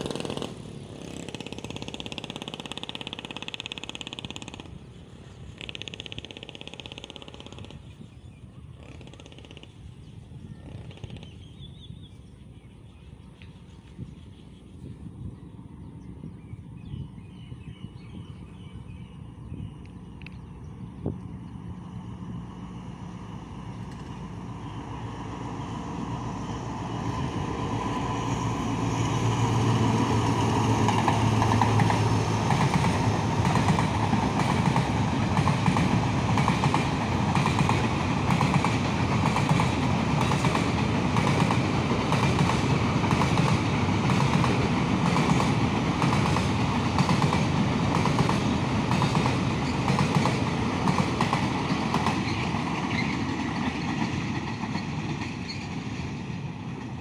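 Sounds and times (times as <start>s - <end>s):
freight train passing: 0.0s - 57.0s
wheels clacking over rail joints: 28.7s - 57.0s.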